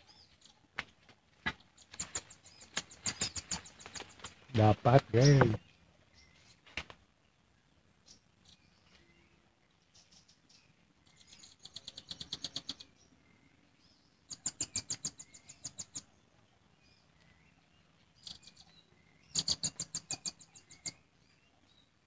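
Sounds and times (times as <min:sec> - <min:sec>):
nuthatch chattering: 0:01.9 - 0:05.6, 0:11.4 - 0:12.9, 0:14.3 - 0:16.1, 0:18.2 - 0:21.0.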